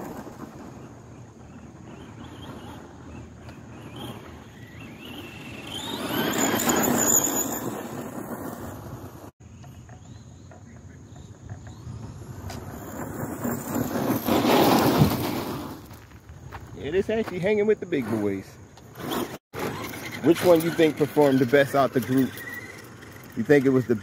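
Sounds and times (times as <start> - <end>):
tyres crunching gravel: 0.0 - 9.3, 10.1 - 24.0
toy truck motor whine: 2.0 - 8.4, 19.0 - 23.9.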